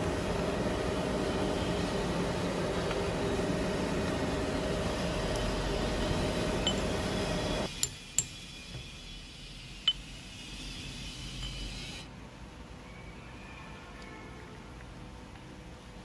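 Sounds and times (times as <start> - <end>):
machinery humming: 0.0 - 12.0
metal clinking on metal: 6.6 - 7.0.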